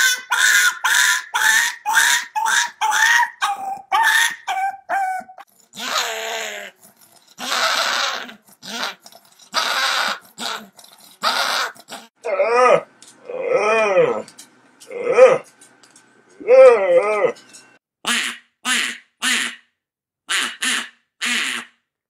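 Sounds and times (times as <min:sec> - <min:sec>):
puppy yelping: 0:00.0 - 0:12.2
dog growling: 0:04.6 - 0:15.5, 0:16.4 - 0:17.4.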